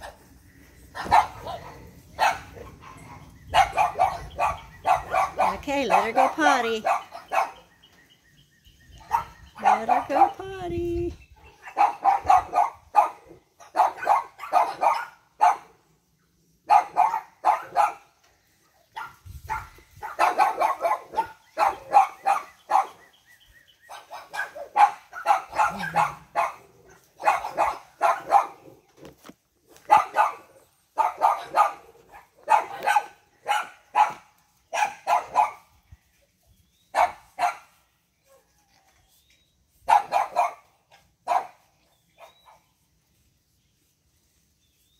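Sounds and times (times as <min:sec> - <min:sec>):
dog barking: 0:01.0 - 0:07.7, 0:09.0 - 0:10.4, 0:11.5 - 0:15.8, 0:16.7 - 0:18.1, 0:18.9 - 0:23.1, 0:23.9 - 0:28.7, 0:29.8 - 0:35.7, 0:36.9 - 0:38.5, 0:39.8 - 0:42.6.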